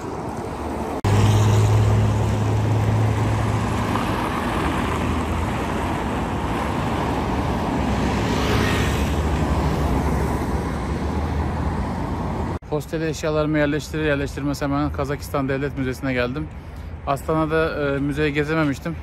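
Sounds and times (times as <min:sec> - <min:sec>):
vehicle engine humming: 0:00.0 - 0:12.6
road traffic noise: 0:00.0 - 0:19.0.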